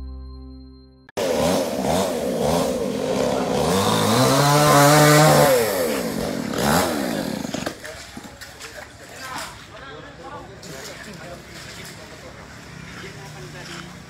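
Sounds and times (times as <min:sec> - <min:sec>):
chainsaw cutting branches: 0:01.2 - 0:08.7.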